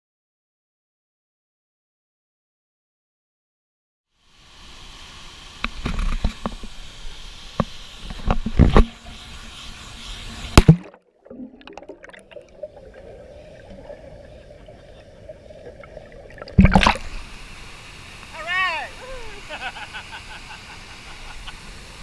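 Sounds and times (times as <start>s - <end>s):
water splashing: 10.3s - 20.5s.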